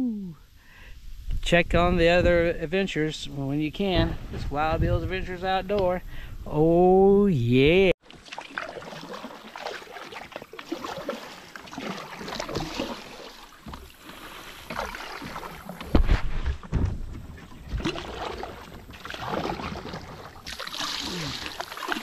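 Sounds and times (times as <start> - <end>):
water around kayak hull: 8.0 - 22.0.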